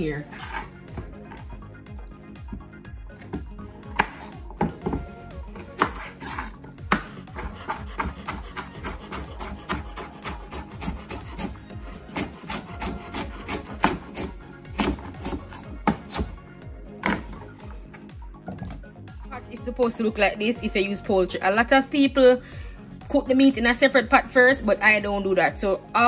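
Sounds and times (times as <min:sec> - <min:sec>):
knife chopping carrot on board: 0:03.2 - 0:05.0, 0:05.6 - 0:16.4.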